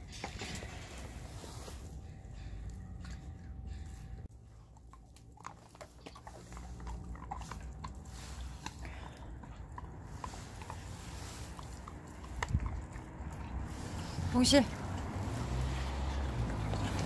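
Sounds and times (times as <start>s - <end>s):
pet chewing crunchily: 0.0s - 17.0s.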